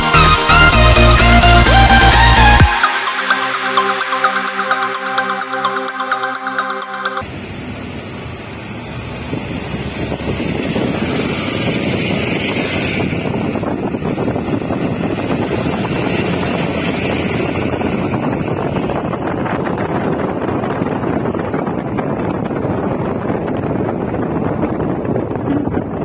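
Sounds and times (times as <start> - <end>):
wind rushing over microphone: 7.2 - 26.0.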